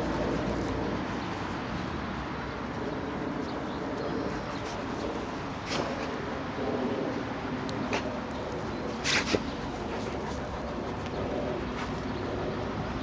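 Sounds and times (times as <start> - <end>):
birds calling faintly: 7.6 - 13.0.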